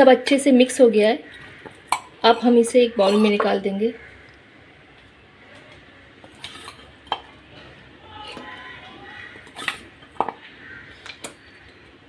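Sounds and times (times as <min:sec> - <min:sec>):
metal spoon scraping bowls: 0:01.3 - 0:03.8, 0:05.5 - 0:11.8.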